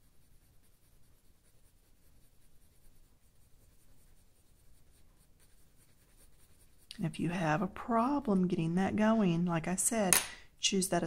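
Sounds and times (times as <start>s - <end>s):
pencil scratching on paper: 0.0s - 8.5s.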